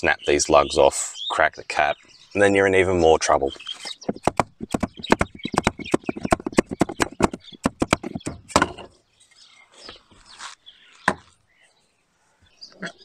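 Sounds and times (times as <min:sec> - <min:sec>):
mallet knocking on timber: 0:04.0 - 0:08.9
faint shuffling: 0:09.2 - 0:12.6.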